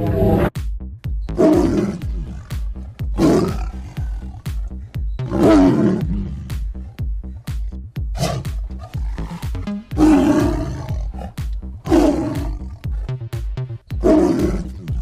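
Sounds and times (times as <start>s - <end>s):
background music with steady beat: 0.0s - 15.0s
animal roaring: 1.4s - 4.5s, 5.2s - 6.6s, 8.2s - 13.1s, 14.0s - 15.0s.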